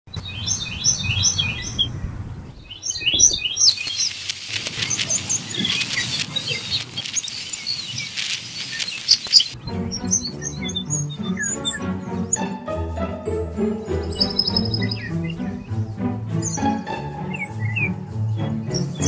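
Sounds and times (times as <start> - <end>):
birds chirping: 0.1 - 19.0
light clicks and rustle: 3.7 - 9.6
high chiming notes: 12.4 - 15.8, 16.4 - 18.4.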